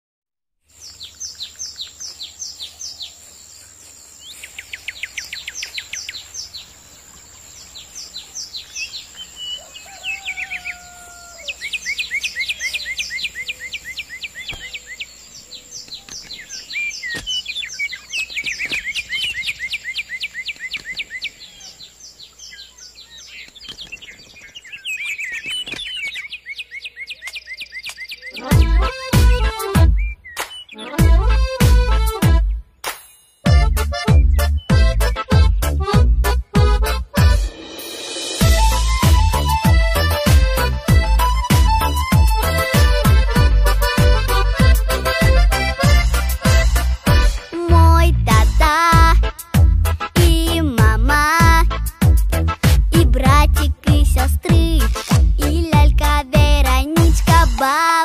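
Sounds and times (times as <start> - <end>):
songbirds singing: 0.7 - 37.4, 38.2 - 58.0.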